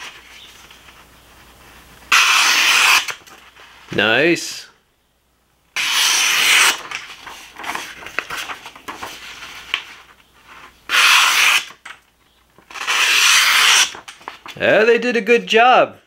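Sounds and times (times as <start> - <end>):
knife slicing paper: 2.1 - 3.2, 5.8 - 8.0, 10.9 - 11.8, 12.7 - 14.1
paper rustling and crackling: 6.4 - 10.8, 13.6 - 14.6.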